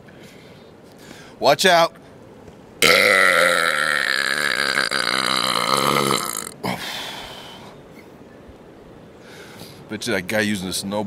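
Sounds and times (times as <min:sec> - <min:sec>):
short breath: 0:00.1 - 0:01.4, 0:09.2 - 0:09.8
man belching: 0:02.8 - 0:06.8.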